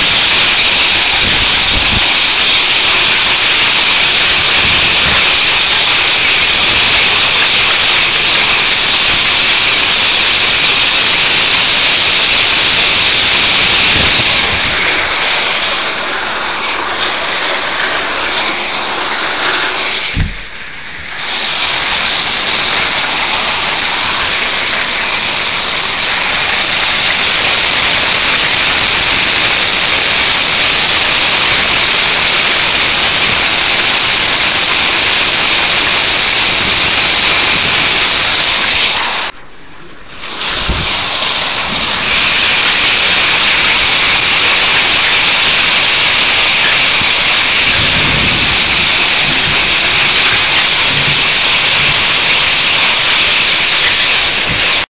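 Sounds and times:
strong wind buffeting microphone: 0.0s - 9.8s, 10.6s - 16.4s, 40.4s - 54.9s
hail blowing: 0.0s - 39.4s, 40.2s - 54.9s
low thump: 20.2s - 20.5s.

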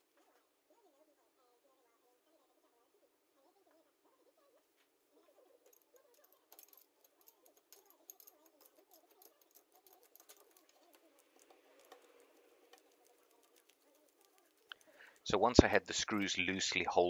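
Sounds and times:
small metal clicks: 5.7s - 15.3s.

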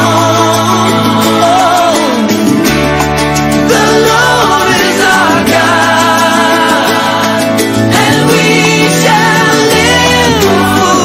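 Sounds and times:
rock ballad with guitar: 0.0s - 11.0s.

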